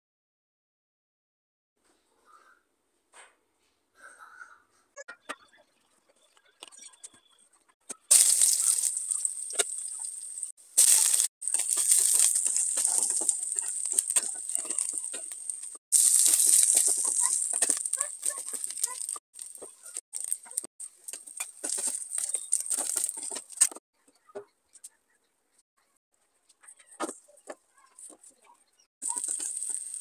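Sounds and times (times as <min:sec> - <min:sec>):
fish sizzling in hot oil: 0:08.1 - 0:23.8, 0:29.0 - 0:30.0.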